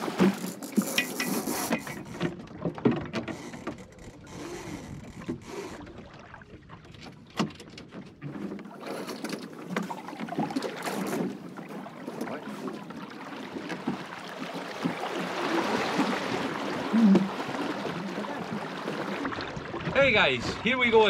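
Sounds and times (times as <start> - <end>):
water wash: 0.0 - 3.5, 8.2 - 21.0
gear knocking in boat: 0.0 - 21.0
wind: 0.0 - 21.0.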